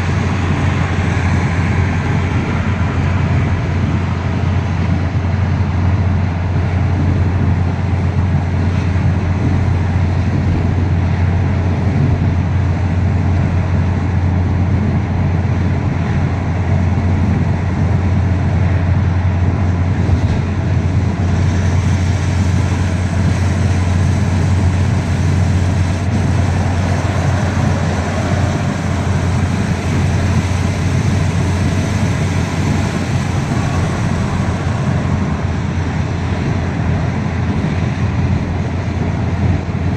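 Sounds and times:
car engine rumble: 0:00.0 - 0:39.9.

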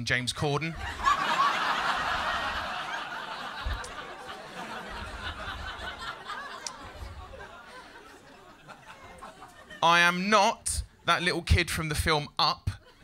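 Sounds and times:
audience laughing: 0:00.7 - 0:10.1, 0:12.7 - 0:13.0.

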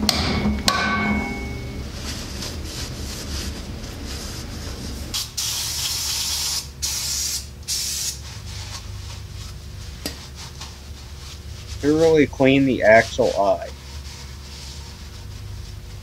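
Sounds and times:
aerosol spray can hissing: 0:05.2 - 0:08.2.

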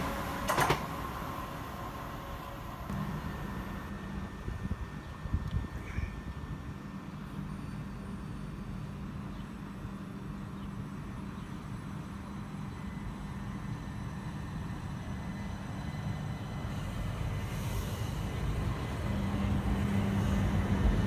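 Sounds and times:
train low hum: 0:00.0 - 0:21.0
train hiss: 0:13.0 - 0:21.0.

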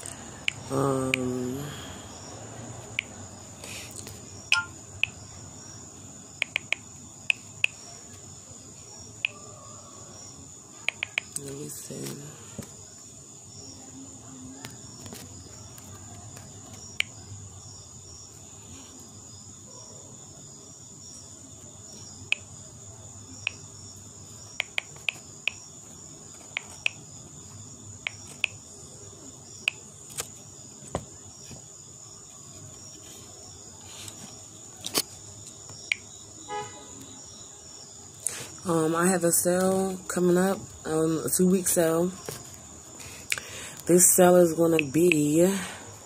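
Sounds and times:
insect chirping: 0:00.0 - 0:46.0
insects trilling: 0:00.0 - 0:46.0
sharp clicks: 0:00.4 - 0:01.3, 0:06.4 - 0:07.8, 0:10.9 - 0:11.5, 0:24.6 - 0:25.6, 0:28.1 - 0:28.6.

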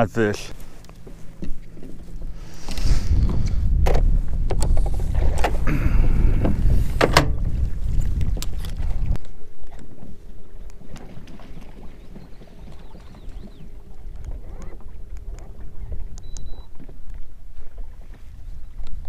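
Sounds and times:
boat engine rumble: 0:00.0 - 0:19.0
faint steady hum: 0:00.0 - 0:19.0
wind on microphone: 0:01.5 - 0:19.0
hull slapping water: 0:06.2 - 0:19.0
light water sounds: 0:07.6 - 0:19.0.

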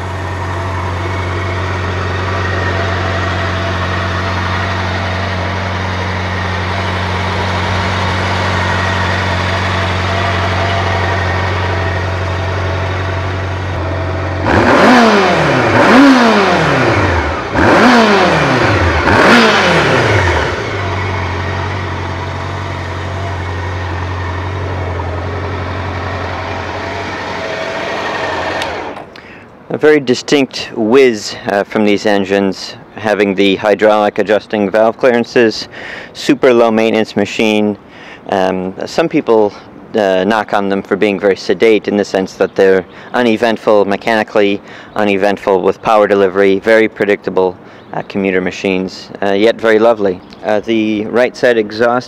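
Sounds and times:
motorcycle engine idling and revving: 0:00.0 - 0:29.4.

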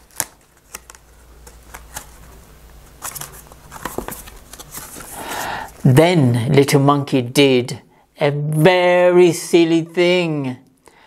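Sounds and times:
book pages turning: 0:00.0 - 0:05.9.

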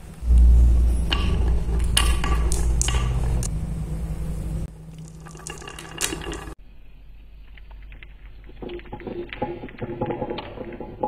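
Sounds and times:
balls clicking together: 0:01.1 - 0:03.5, 0:04.9 - 0:06.6
balls rolling on wooden track: 0:01.1 - 0:03.5, 0:04.7 - 0:06.6, 0:07.5 - 0:11.0.

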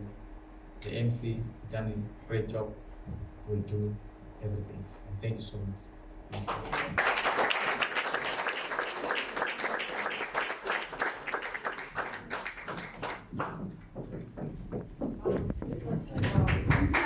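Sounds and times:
audience applauding: 0:06.3 - 0:13.9, 0:16.2 - 0:17.0.

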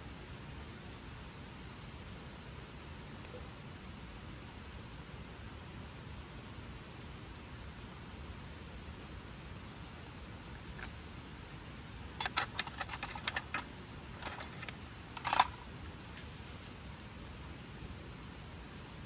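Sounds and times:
background hiss: 0:00.0 - 0:19.0
small sharp clicks and clinks: 0:12.2 - 0:16.3.

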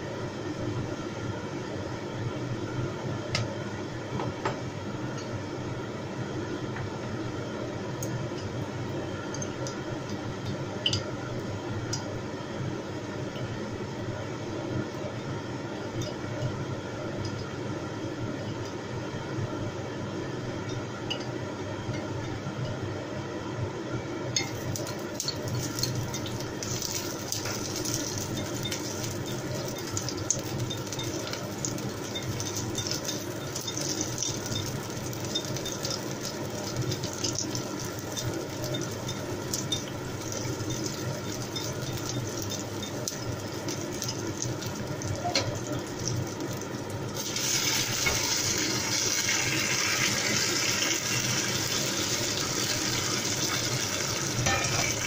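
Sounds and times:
loud steady sizzle: 0:00.0 - 0:55.0
shallots frying in oil: 0:24.4 - 0:55.0.

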